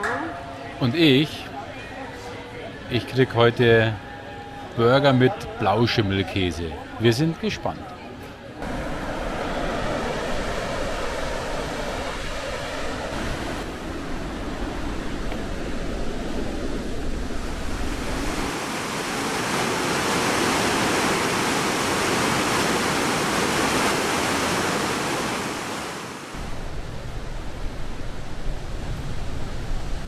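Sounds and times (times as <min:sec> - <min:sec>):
waterfall roaring: 0:08.6 - 0:27.3
wind rumbling on microphone: 0:08.6 - 0:30.0.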